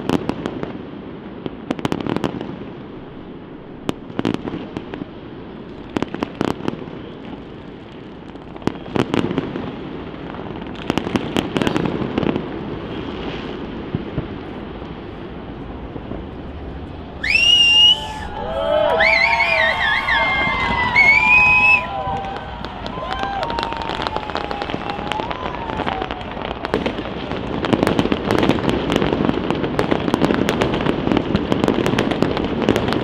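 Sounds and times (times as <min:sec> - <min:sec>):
fireworks bangs and crackles: 0:00.0 - 0:33.0
people cheering: 0:17.1 - 0:27.8
shrill whistles: 0:17.2 - 0:22.1.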